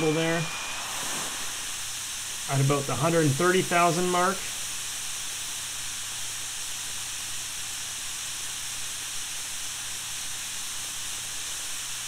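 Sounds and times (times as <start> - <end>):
model turbine engine hissing: 0.0 - 8.8.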